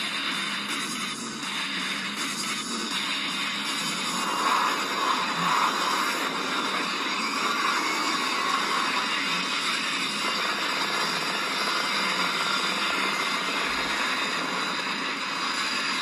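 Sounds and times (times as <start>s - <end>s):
film soundtrack through laptop speakers: 0.0s - 16.0s.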